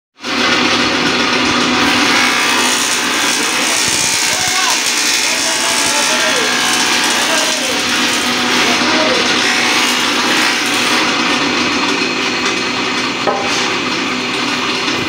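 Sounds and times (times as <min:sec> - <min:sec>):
wood planer cutting board: 0:00.2 - 0:15.0.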